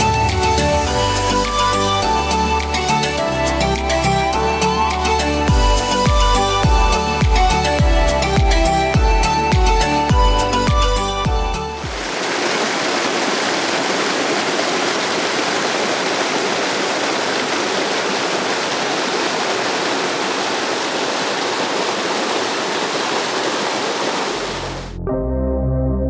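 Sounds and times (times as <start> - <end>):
background music: 0.0 - 12.1, 24.5 - 26.0
waterfall rushing over rock: 11.8 - 24.9.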